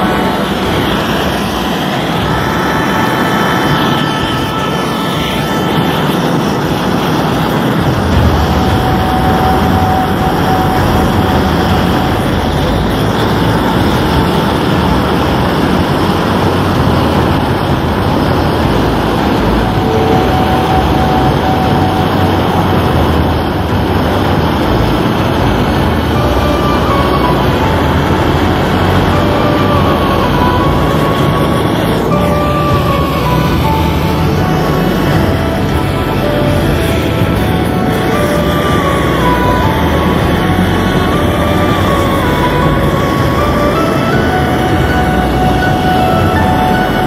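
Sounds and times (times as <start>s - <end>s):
gas torch hissing: 0.0s - 47.0s.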